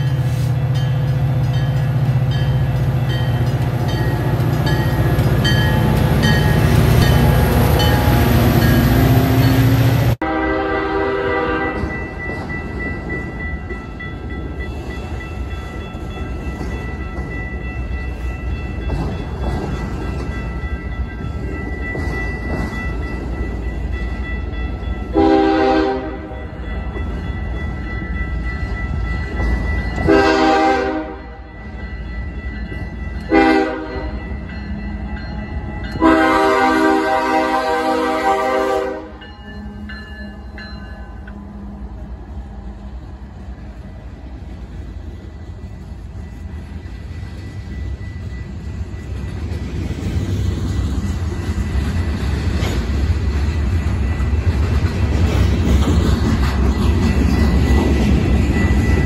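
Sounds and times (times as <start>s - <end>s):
train air horn blasts: 10.2s - 11.9s, 25.1s - 26.4s, 30.0s - 31.4s, 33.3s - 34.2s, 36.0s - 39.2s.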